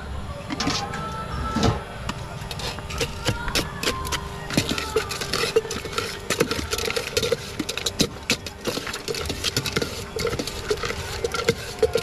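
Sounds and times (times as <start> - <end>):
metal spoon clinking in steel container: 4.5 - 12.0.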